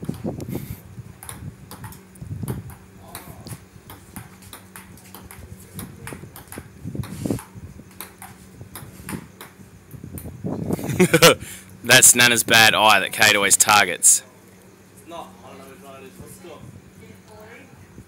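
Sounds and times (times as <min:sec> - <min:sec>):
table tennis ball clicking: 0:01.2 - 0:09.6.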